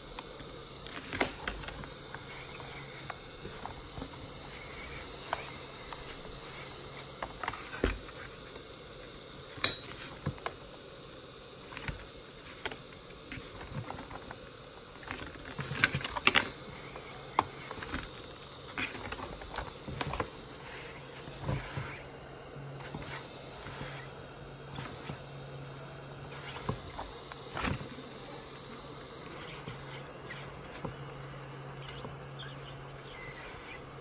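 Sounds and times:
heat gun blowing: 0.0 - 13.2.

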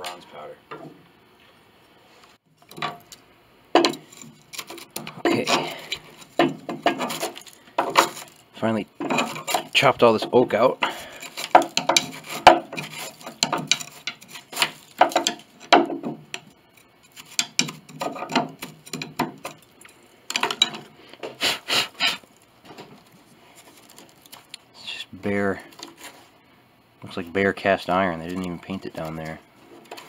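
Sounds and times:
hand tool scraping wood chips: 3.9 - 15.7, 21.4 - 22.4.

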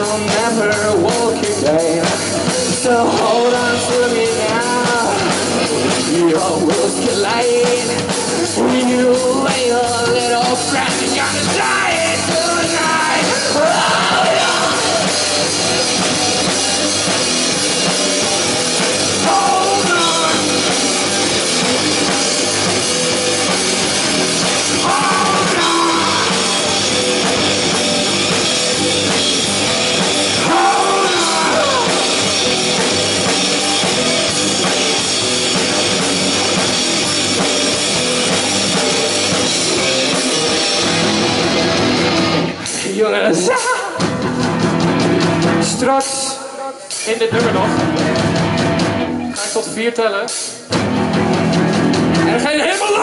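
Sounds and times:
man singing into microphone: 0.0 - 15.1, 19.2 - 20.7, 24.8 - 26.7, 30.4 - 32.2, 45.6 - 47.9
drum kit: 0.0 - 53.0
electric guitars: 0.0 - 53.0.

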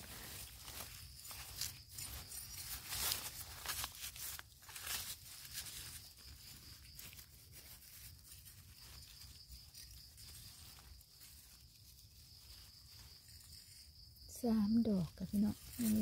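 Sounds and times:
dry leaves rustling and crackling: 0.0 - 16.0.

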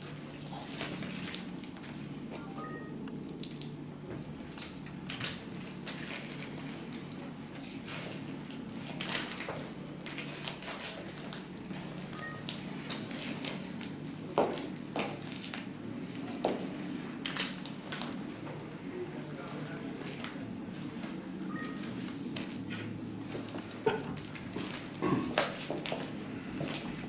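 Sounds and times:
drips and small splashes: 0.1 - 2.0, 3.0 - 10.1.

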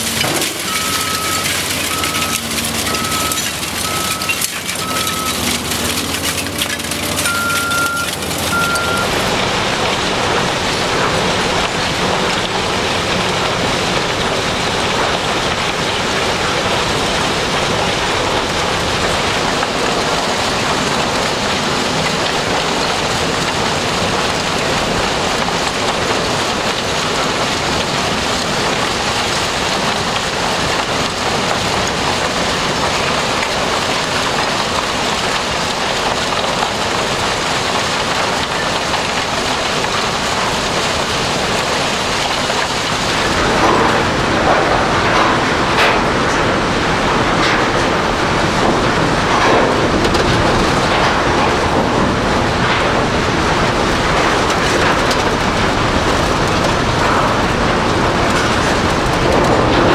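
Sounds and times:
scrap metal clattering: 0.0 - 9.0, 42.3 - 59.9
reversing alarm beeps: 0.6 - 5.5, 7.2 - 9.2.

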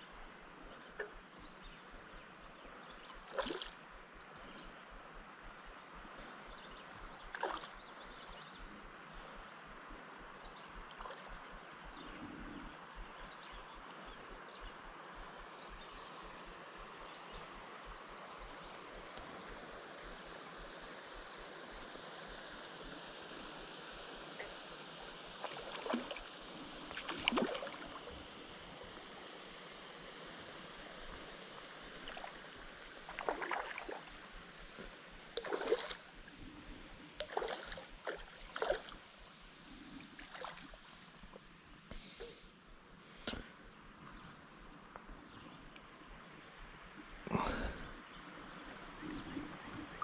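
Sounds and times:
water splashing: 3.2 - 3.8, 7.3 - 7.8, 25.3 - 28.3, 32.0 - 36.2, 37.2 - 39.0, 40.1 - 40.9
faint hiss: 11.3 - 50.0.

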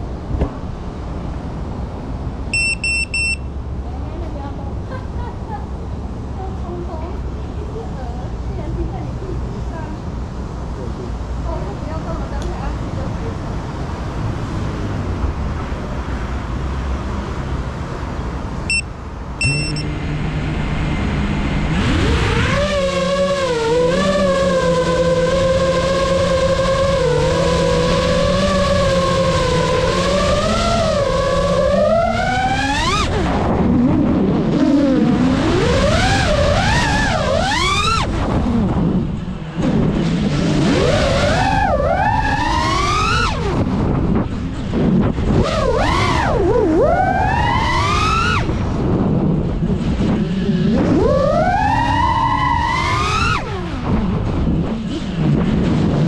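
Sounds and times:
background traffic noise: 0.0 - 56.0
short electronic beeps: 2.5 - 3.5, 18.7 - 19.9
drone motors whining: 19.4 - 48.7, 49.4 - 56.0.

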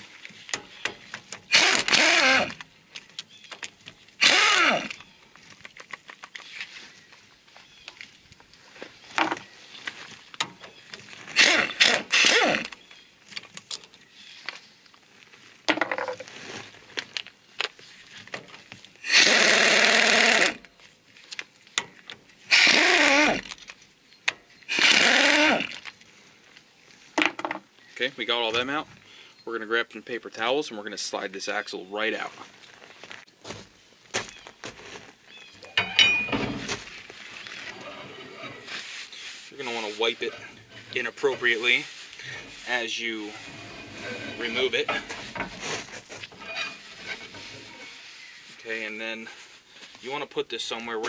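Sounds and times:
power tool spinning socket: 1.5 - 2.6, 4.2 - 5.0, 11.4 - 12.7, 19.1 - 20.6, 22.5 - 23.6, 24.7 - 25.8.

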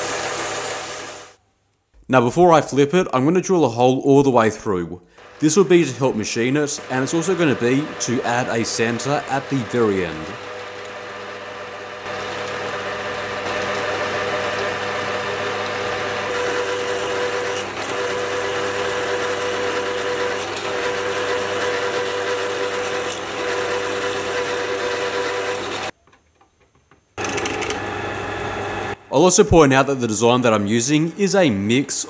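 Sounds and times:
lathe drilling steel bar: 0.0 - 1.4, 5.2 - 25.9.

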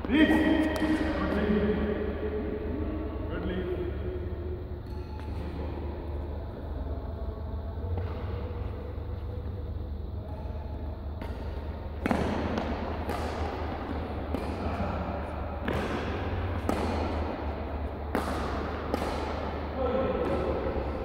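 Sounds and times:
steady low hum: 0.0 - 21.0
racket striking shuttlecock: 10.2 - 21.0.

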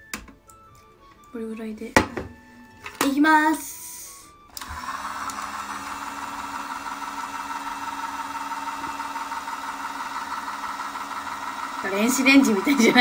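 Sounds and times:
toy washing machine motor humming: 4.5 - 13.0.

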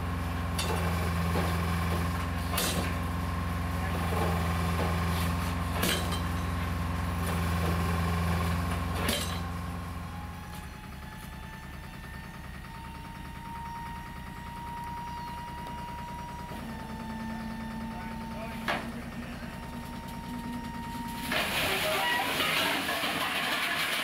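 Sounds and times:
diesel engine running: 0.0 - 24.0
sharp metallic clanks: 2.4 - 3.0, 5.8 - 6.6, 9.0 - 9.5.

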